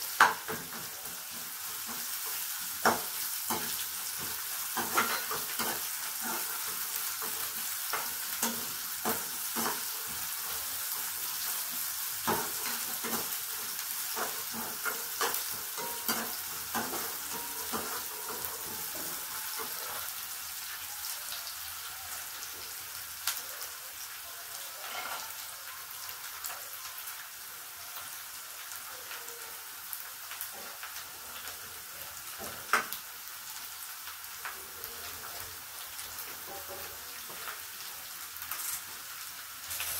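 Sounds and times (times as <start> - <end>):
onions sizzling in hot oil: 0.0 - 39.9
spoon stirring and scraping pan: 0.1 - 20.4, 24.8 - 26.0.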